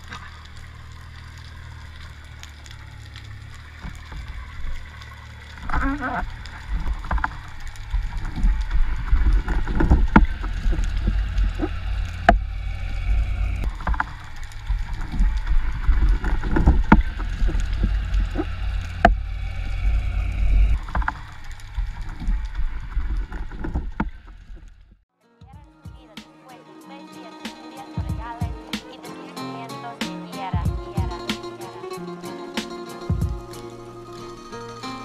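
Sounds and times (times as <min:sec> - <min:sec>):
underwater rumble of moving water: 0:00.0 - 0:24.9.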